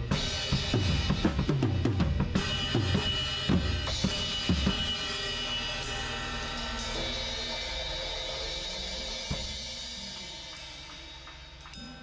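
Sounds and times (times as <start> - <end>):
drum kit playing: 0.0 - 7.6
cymbals ringing: 0.0 - 12.0.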